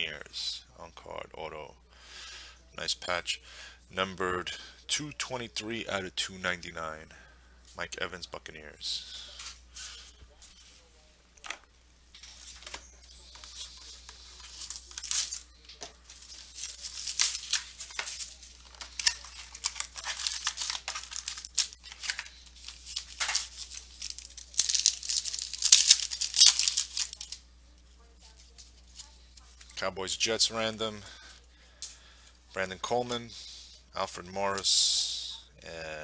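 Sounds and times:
foil wrapper tearing and crinkling: 13.2 - 15.5, 16.1 - 27.4.

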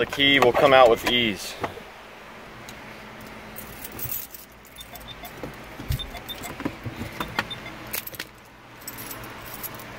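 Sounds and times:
car keys jingling: 3.5 - 9.9.

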